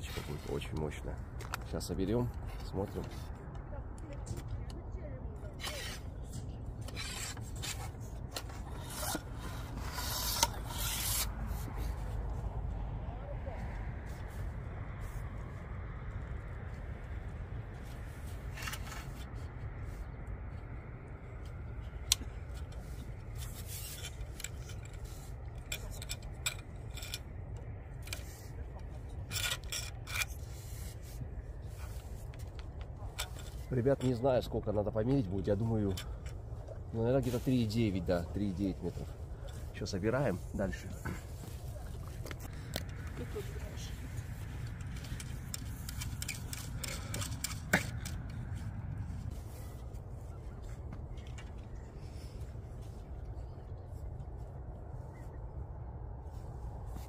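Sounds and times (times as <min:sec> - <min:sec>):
fishing rod rubbing and scraping: 0:00.0 - 0:01.6, 0:05.4 - 0:12.9, 0:17.8 - 0:20.1, 0:21.8 - 0:55.4
steady low rumble: 0:00.0 - 0:57.0.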